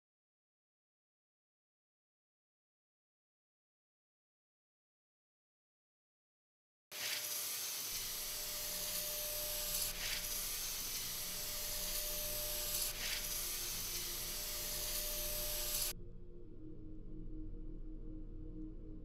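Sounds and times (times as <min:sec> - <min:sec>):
steady hiss: 0:07.0 - 0:15.9
low pulsing music: 0:11.2 - 0:19.0.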